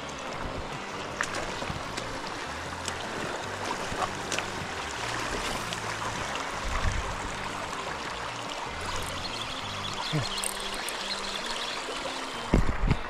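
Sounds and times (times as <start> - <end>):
river water rushing over stones: 0.0 - 13.0.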